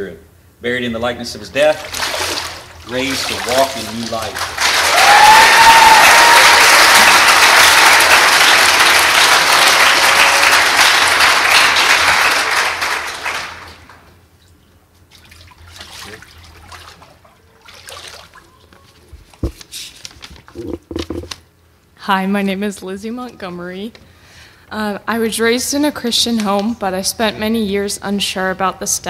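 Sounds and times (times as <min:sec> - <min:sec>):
congregation applauding: 0:02.9 - 0:14.1
person whooping: 0:04.8 - 0:07.3.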